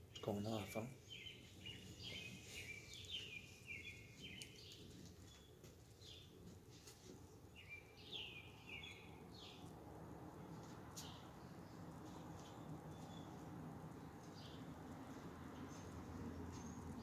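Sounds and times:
low background noise: 0.0s - 17.0s.

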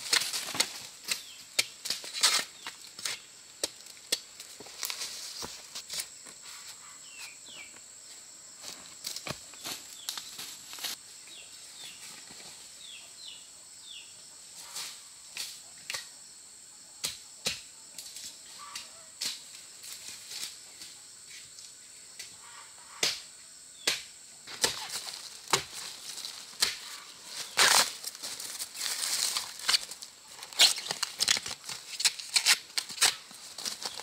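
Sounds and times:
rustling and crunching: 0.0s - 6.6s, 8.6s - 11.0s, 24.5s - 34.0s
insects buzzing: 0.0s - 34.0s.

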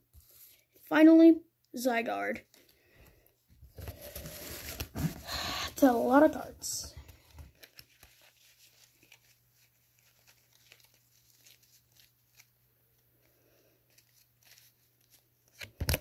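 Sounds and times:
trading cards being handled: 6.8s - 12.6s, 13.9s - 16.0s.

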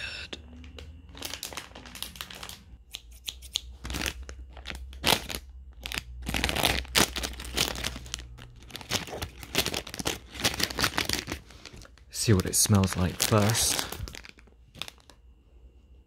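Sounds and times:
plastic wrapper crinkling: 0.5s - 2.8s, 3.7s - 15.2s.

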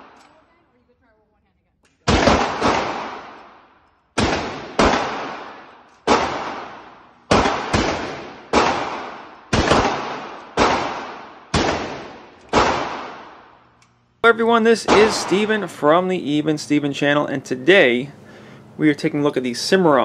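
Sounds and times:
rifle shots echoing indoors: 0.0s - 0.4s, 2.0s - 16.0s.

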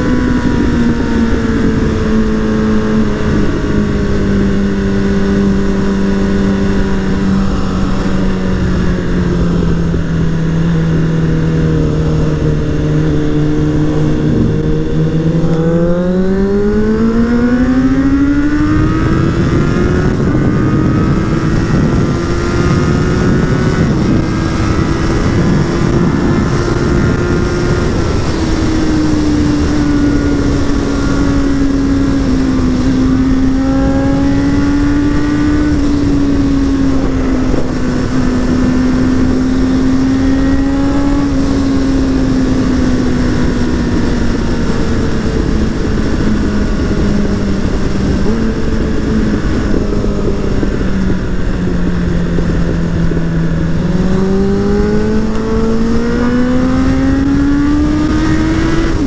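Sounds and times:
motorcycle engine at high revs: 0.0s - 59.0s
wind rush: 0.0s - 59.0s.

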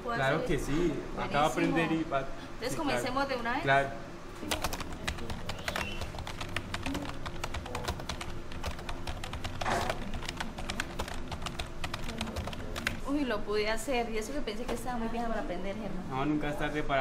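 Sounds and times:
keyboard typing clicks: 4.4s - 13.0s.

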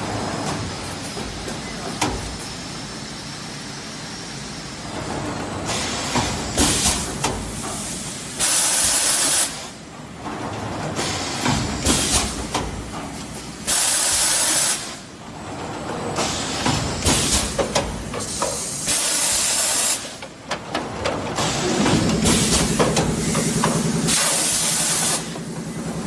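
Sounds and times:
machine mechanical hum: 0.0s - 26.0s
pneumatic clicks and knocks: 0.4s - 2.6s, 5.7s - 9.6s, 10.4s - 14.9s, 16.2s - 25.5s
loud air hissing blast: 5.7s - 9.8s, 13.6s - 15.1s, 16.2s - 17.6s, 18.2s - 20.2s, 21.4s - 25.4s.

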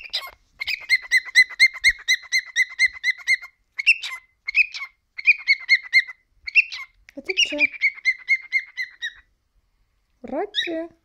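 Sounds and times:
cockatiel chirping: 0.0s - 9.3s, 10.5s - 10.9s.

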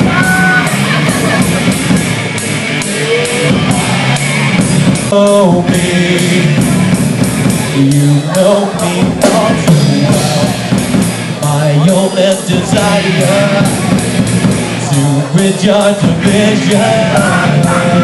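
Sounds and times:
drums: 0.0s - 18.0s
electric guitars: 0.0s - 18.0s
person singing: 5.0s - 6.9s, 7.6s - 18.0s.

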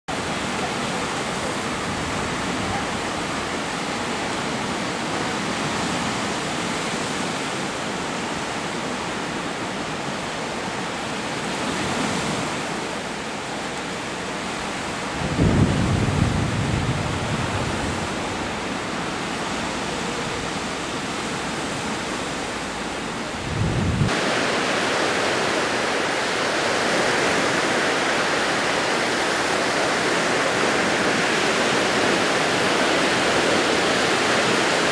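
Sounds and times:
small waves washing on beach: 0.1s - 34.9s
low rumbles: 22.1s - 24.2s.

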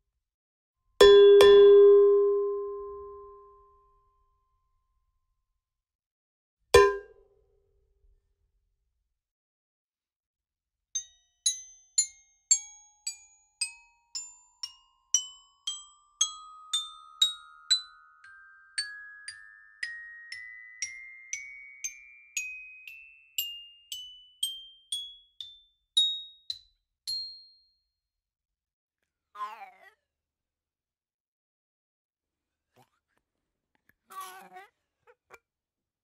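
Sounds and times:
rising mallet percussion scale: 13.6s - 26.4s.

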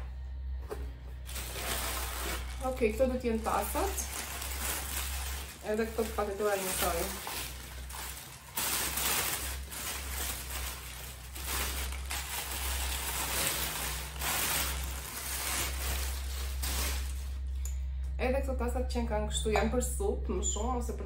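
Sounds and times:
packing paper rustling and crinkling: 1.2s - 17.6s.

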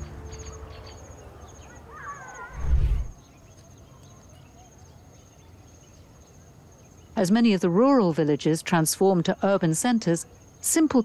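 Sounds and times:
faint outdoor background: 0.0s - 11.0s
deep low boom: 2.6s - 3.2s.

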